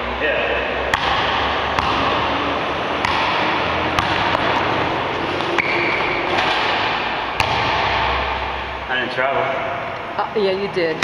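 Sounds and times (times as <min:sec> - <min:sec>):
basketball bouncing on wood floor: 0:00.9 - 0:02.4, 0:03.0 - 0:08.4.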